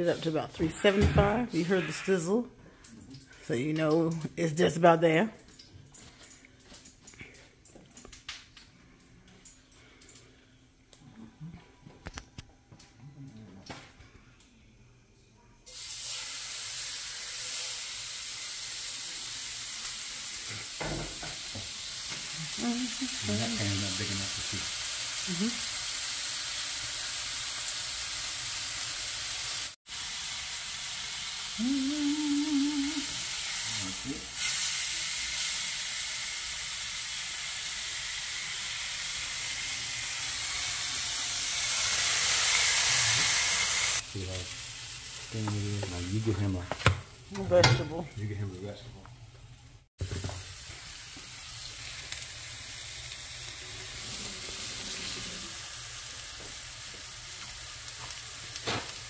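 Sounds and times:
steak sizzling in frying pan: 15.7 - 47.6, 49.6 - 59.0.

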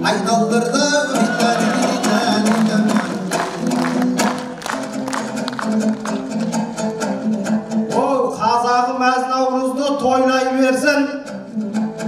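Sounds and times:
lute strummed in quick rhythm: 0.5 - 8.7.

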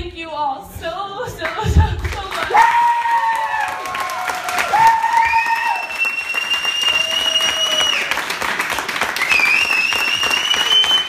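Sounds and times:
crowd applauding: 2.3 - 11.0.

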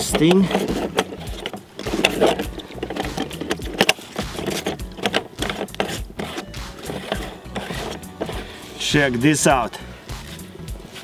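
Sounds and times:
metallic clicking and rattling: 0.0 - 8.5
gas sputtering: 0.0 - 8.8.

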